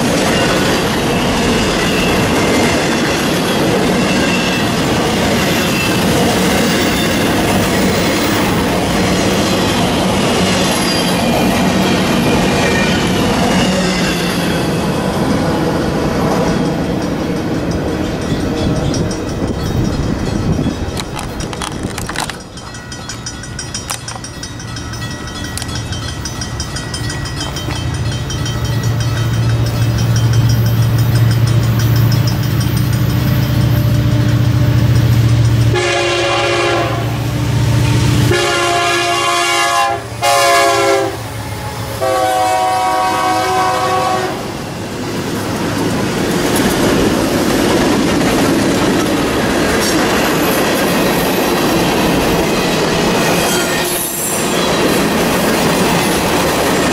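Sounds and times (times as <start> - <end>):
train wheels on rails: 0.0 - 56.9
diesel locomotive rumble: 14.4 - 53.4
train air horn blasts: 35.7 - 37.2, 38.2 - 44.5.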